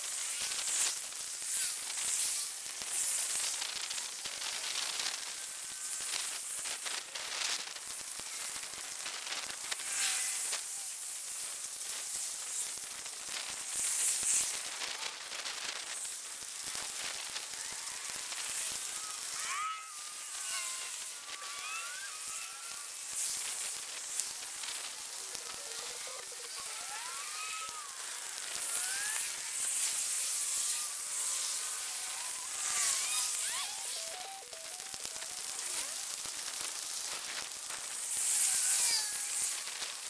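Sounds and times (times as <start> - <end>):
quick crackling clicks: 0.0 - 40.0
steady hiss: 0.0 - 40.0.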